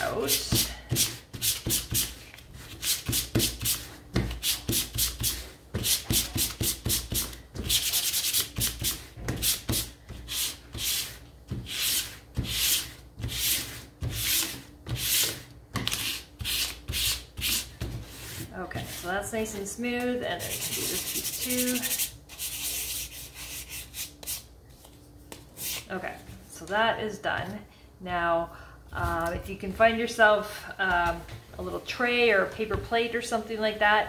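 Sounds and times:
sandpaper rasping on wood: 0:04.4 - 0:15.3, 0:20.4 - 0:24.4.

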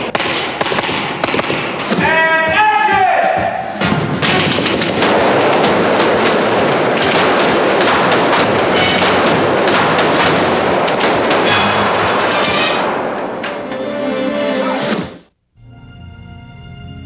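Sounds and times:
bullet hits: 0:00.0 - 0:02.0, 0:03.8 - 0:13.6
pistol shots: 0:00.0 - 0:02.0, 0:03.8 - 0:13.7.

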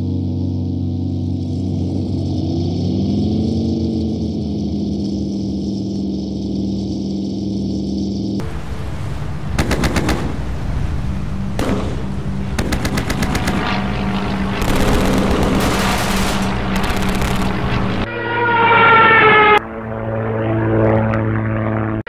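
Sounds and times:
propeller engine drone: 0:00.0 - 0:22.0
machine gun bursts: 0:09.6 - 0:10.5, 0:11.6 - 0:18.0.

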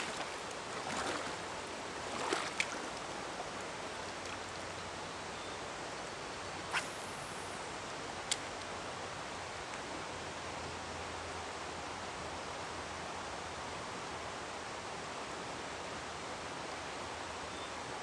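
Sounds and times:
river flowing over rocks: 0:00.0 - 0:06.6
faint clicks: 0:08.2 - 0:08.8.

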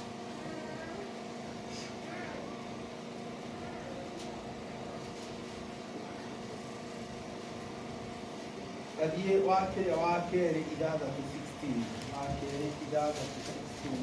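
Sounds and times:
public address system hum: 0:08.6 - 0:14.0.

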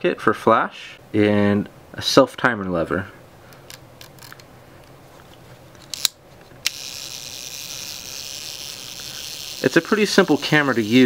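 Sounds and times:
self-timer buzzing: 0:05.9 - 0:11.0.

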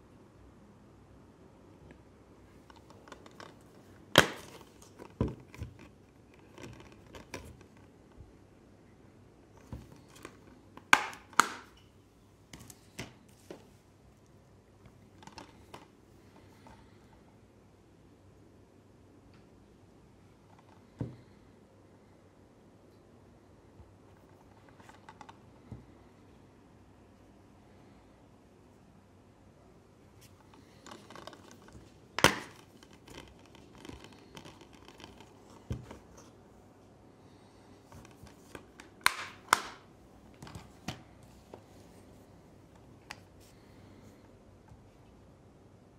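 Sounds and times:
plastic cases clicking and tapping: 0:02.6 - 0:07.9, 0:09.7 - 0:11.8, 0:15.1 - 0:16.8, 0:30.5 - 0:36.2, 0:37.9 - 0:41.0
plastic cases clacking: 0:30.4 - 0:36.3.

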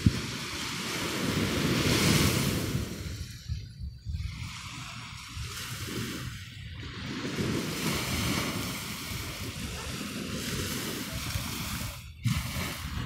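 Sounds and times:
small waves washing onto beach: 0:00.0 - 0:13.0
wind buffeting microphone: 0:00.0 - 0:13.0.

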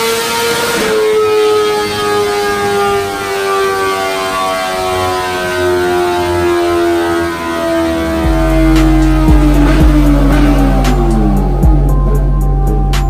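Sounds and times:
motorcycle engine revs falling: 0:08.2 - 0:12.1.

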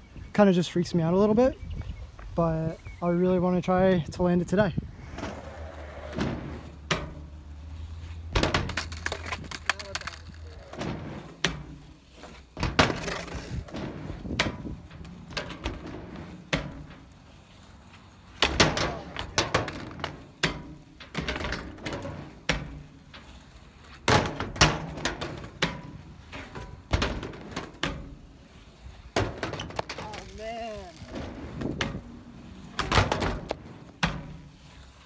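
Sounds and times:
skateboard wheels rolling: 0:00.5 - 0:35.0
skateboard clacking on ramp and rail: 0:08.3 - 0:11.8, 0:18.4 - 0:22.9, 0:24.0 - 0:28.2, 0:32.7 - 0:34.5
skateboard clattering away: 0:18.4 - 0:22.9, 0:24.0 - 0:28.2, 0:32.7 - 0:34.5.

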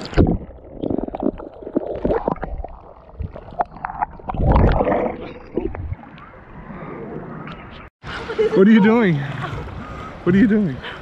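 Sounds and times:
underwater gurgling: 0:00.0 - 0:06.9.

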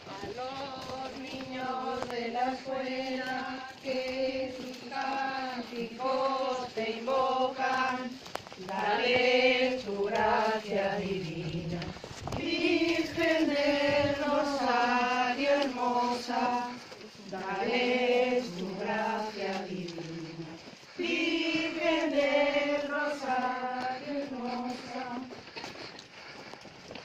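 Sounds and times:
women singing a hymn: 0:00.0 - 0:25.7.

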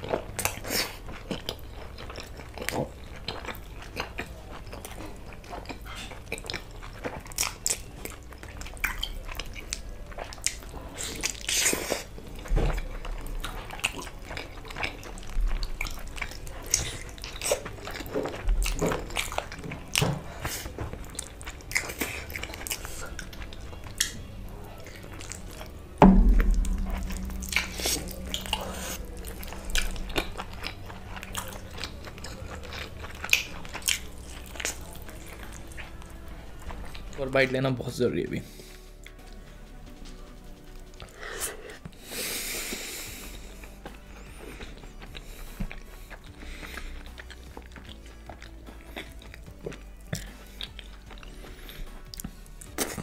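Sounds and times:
person chewing food: 0:00.0 - 0:37.5, 0:38.4 - 0:53.0
loud thump: 0:26.0 - 0:28.6.

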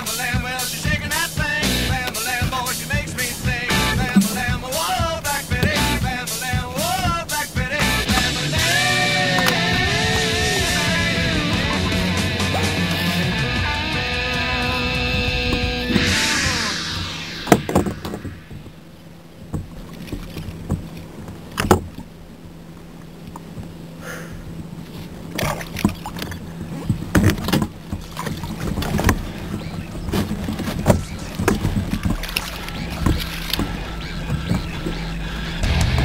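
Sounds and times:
knocks and rattles on plastic kayak: 0:00.3 - 0:08.3, 0:19.4 - 0:22.5, 0:24.4 - 0:36.0.

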